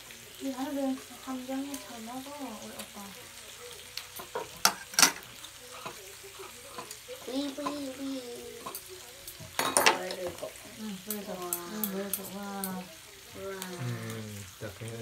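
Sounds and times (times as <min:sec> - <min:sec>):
meat sizzling on griddle: 0:00.0 - 0:15.0
metal chopsticks clacking: 0:08.6 - 0:10.2, 0:11.0 - 0:12.8.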